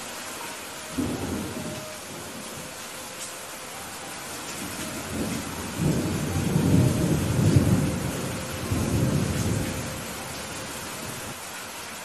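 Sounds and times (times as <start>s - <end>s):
heavy rain: 0.0s - 12.0s
thunder rumbling: 0.9s - 2.8s, 4.4s - 11.4s.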